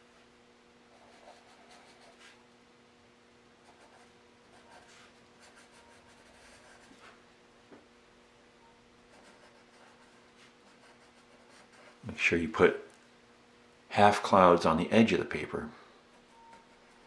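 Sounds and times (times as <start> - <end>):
faint steady hum: 0.0 - 17.0
pencil scratching on paper: 0.9 - 2.4, 3.6 - 7.2, 9.1 - 12.1, 16.1 - 17.0.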